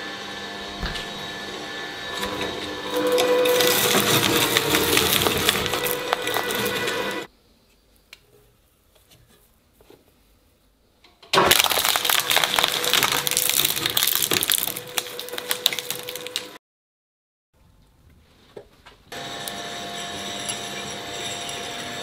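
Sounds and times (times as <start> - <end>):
shredder motor hum: 0.0 - 7.3, 11.4 - 16.6, 19.1 - 22.0
shredder tearing plush toy: 2.0 - 7.3, 11.4 - 16.6.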